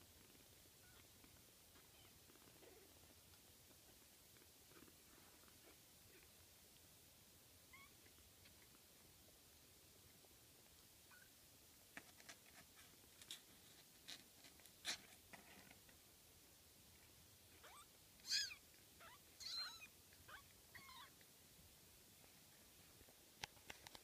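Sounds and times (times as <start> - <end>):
kittens crawling on blanket: 0.0 - 6.9, 11.8 - 16.1
kittens mewing: 17.6 - 21.1.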